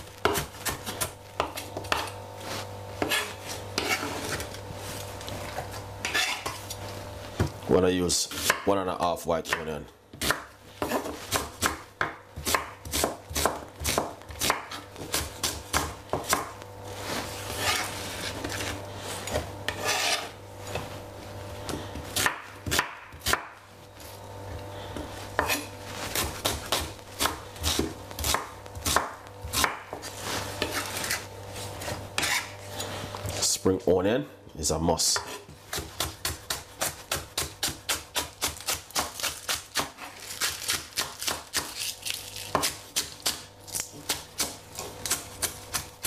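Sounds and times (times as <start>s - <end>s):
steady low hum: 0.0s - 40.0s
knife chopping on wooden board: 0.2s - 2.2s, 3.0s - 4.5s, 8.3s - 8.7s, 9.5s - 16.6s, 17.6s - 20.9s, 21.7s - 23.6s, 25.0s - 31.2s, 35.2s - 46.0s.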